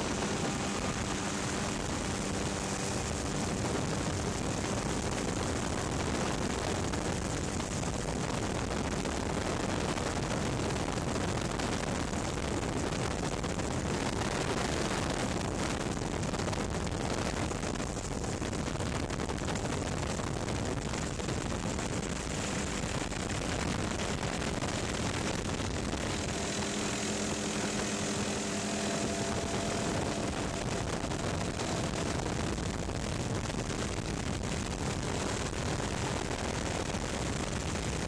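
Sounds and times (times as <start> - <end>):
helicopter engine and rotor: 0.0 - 5.6, 22.1 - 32.8.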